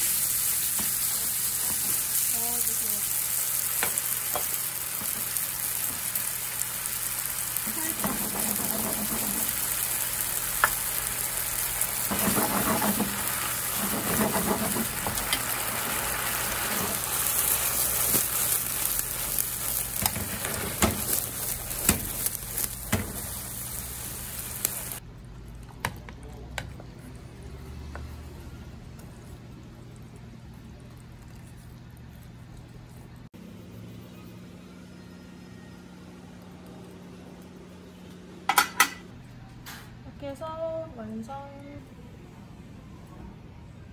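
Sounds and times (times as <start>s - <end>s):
food sizzling in a frying pan: 0.0s - 25.0s.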